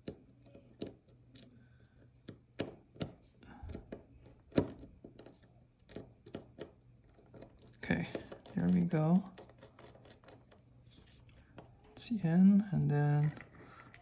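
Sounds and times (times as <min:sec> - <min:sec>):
screwdriver clicking and tapping: 0:00.0 - 0:01.5, 0:02.2 - 0:06.8.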